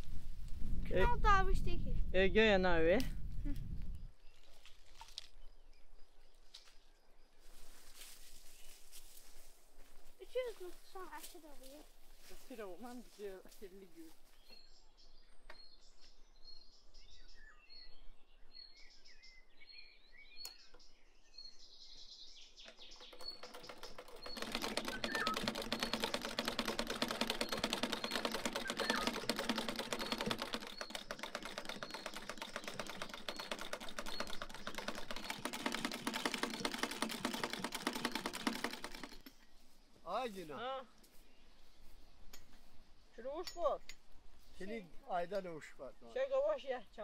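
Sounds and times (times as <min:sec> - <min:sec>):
bird chirping: 0:13.6 - 0:40.3
sewing machine clatter: 0:23.0 - 0:39.4.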